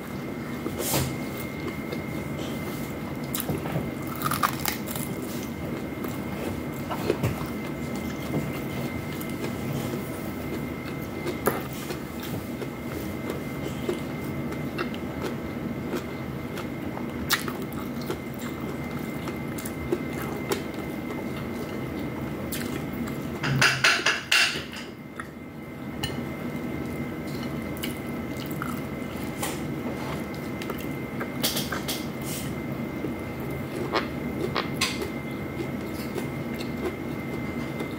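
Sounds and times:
steady background hum: 0.0 - 37.9
chewing and mouth sounds: 1.3 - 23.4, 26.8 - 32.1, 33.0 - 37.9.

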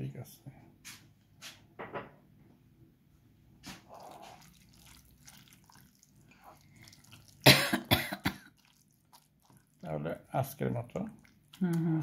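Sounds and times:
hand squeezing food in bowl: 3.7 - 7.4, 8.4 - 12.0
person coughing: 7.4 - 8.5.

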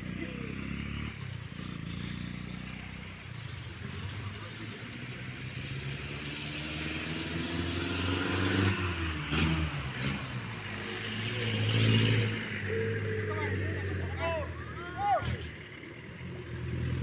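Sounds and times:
vehicle engine passing: 0.0 - 17.0.

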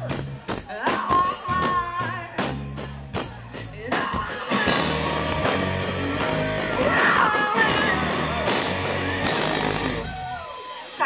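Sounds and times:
live rock band playing: 0.0 - 11.0
woman singing: 0.7 - 5.4, 6.8 - 8.2.

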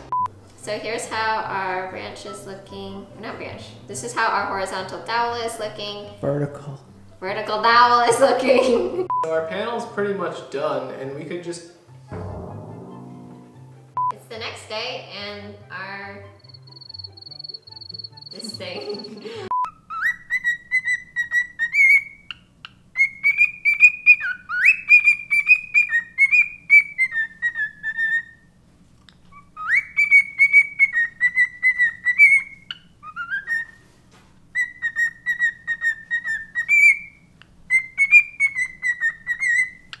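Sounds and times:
cockatiel whistling and warbling: 19.8 - 22.4, 23.0 - 28.4, 29.3 - 33.8, 34.5 - 40.0.

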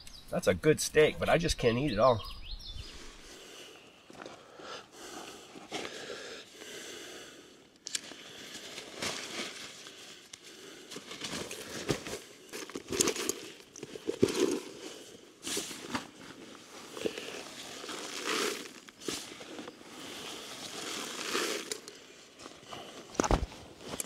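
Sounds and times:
rustling and crinkling: 7.9 - 24.0.

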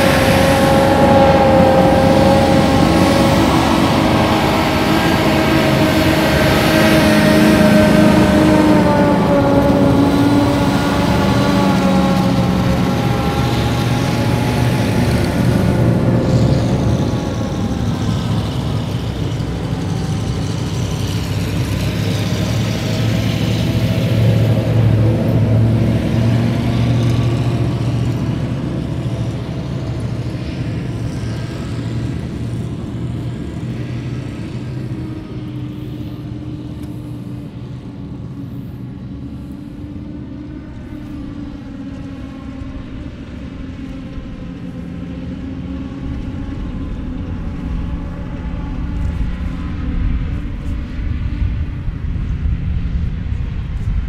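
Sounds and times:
trucks driving past: 0.0 - 54.0.

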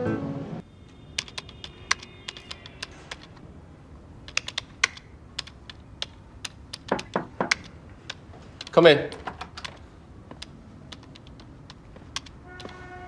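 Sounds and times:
typing on computer keyboard: 1.1 - 3.4, 4.2 - 12.3
knocking on door: 6.9 - 7.6.

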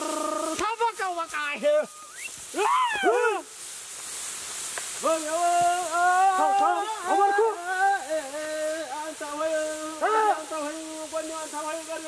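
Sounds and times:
man singing long wavering calls: 0.0 - 0.6, 5.0 - 12.0.

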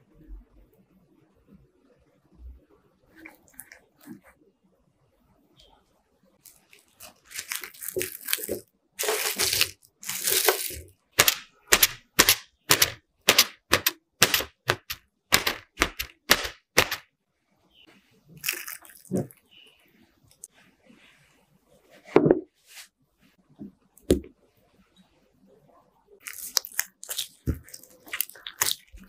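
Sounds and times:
cling film crinkling: 6.4 - 12.0, 26.2 - 29.0
skewer popping taut film: 6.4 - 17.1, 26.2 - 29.0.

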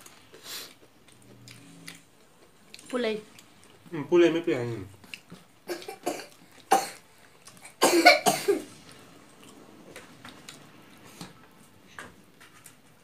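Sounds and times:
man coughing: 5.7 - 7.0, 7.8 - 8.7.

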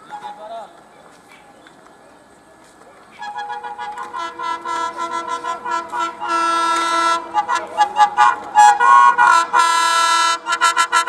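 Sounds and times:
locomotive horn toots and blasts: 3.2 - 11.0.

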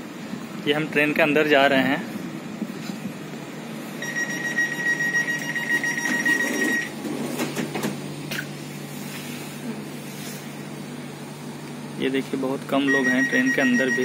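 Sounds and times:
high door warning beep: 4.0 - 7.0, 12.8 - 14.0.

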